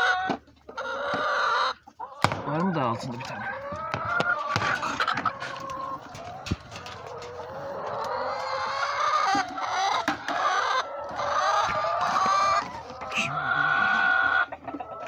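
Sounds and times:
hens clucking: 0.0s - 15.0s
hens wavering calls: 0.0s - 15.0s.

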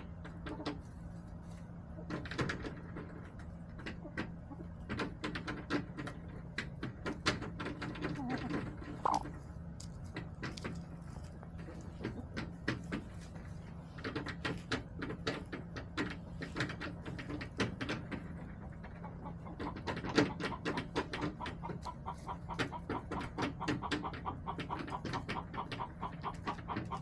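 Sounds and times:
hens clucking softly: 0.0s - 27.0s.

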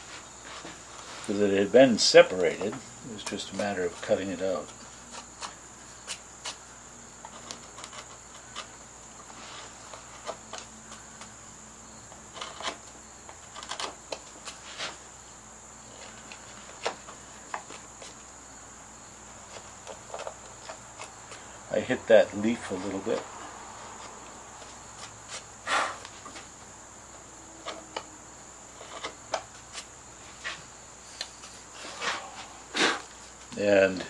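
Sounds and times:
cricket trill: 0.0s - 34.0s
carving tool clicking and scraping wood: 7.2s - 8.7s, 12.2s - 14.3s.

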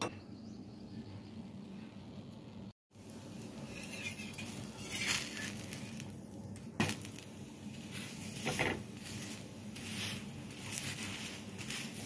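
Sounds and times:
metal spatula scraping pan: 3.6s - 5.7s.

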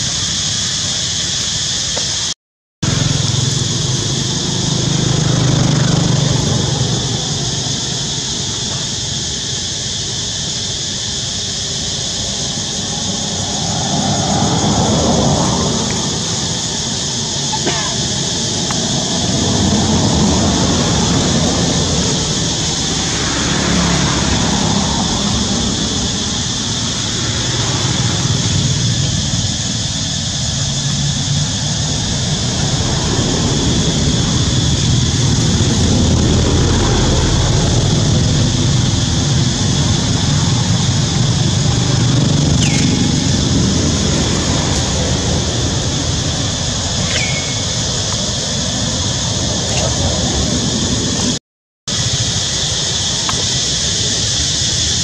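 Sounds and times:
insect drone: 0.0s - 55.0s
low rumble: 12.3s - 51.4s.

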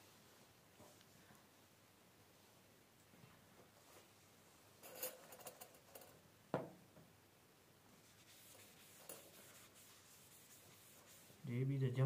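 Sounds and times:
small metal clicks and rattles: 4.8s - 6.2s.

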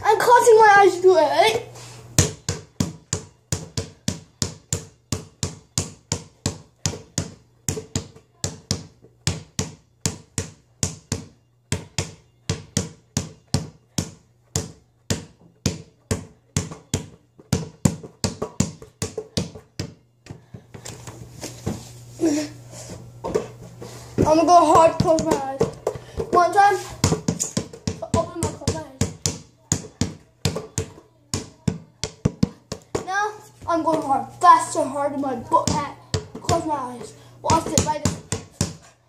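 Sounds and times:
basketball bouncing on floor: 2.2s - 20.9s, 23.2s - 23.6s, 24.2s - 34.2s, 35.5s - 38.8s.

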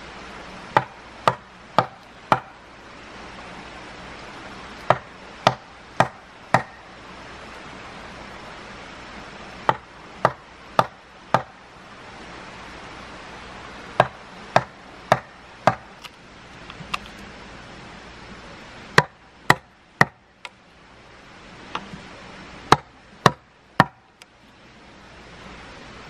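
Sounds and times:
blade chopping wood: 0.7s - 2.6s, 4.8s - 6.8s, 9.7s - 11.6s, 14.0s - 16.0s, 19.0s - 20.2s, 22.7s - 24.0s.

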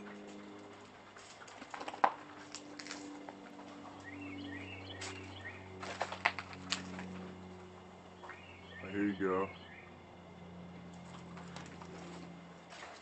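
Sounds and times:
low steady hum: 0.0s - 13.0s
footsteps crunching over debris: 0.1s - 7.3s, 10.9s - 13.0s
bird chirping: 3.9s - 5.8s, 8.1s - 10.0s.

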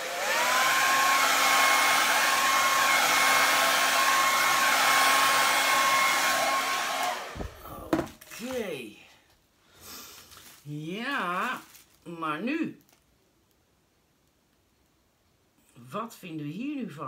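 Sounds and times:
hair dryer running: 0.0s - 8.2s
low thump: 7.3s - 8.2s.

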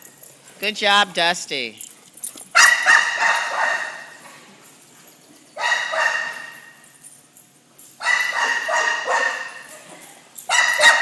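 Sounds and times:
puppies barking with echo: 2.6s - 4.2s, 5.6s - 6.7s, 8.0s - 11.0s.

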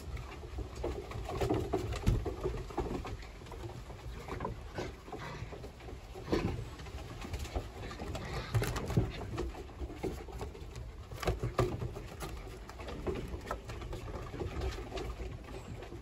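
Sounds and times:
paws pattering on wooden boards: 0.0s - 16.0s
puppies growling: 3.9s - 11.5s.

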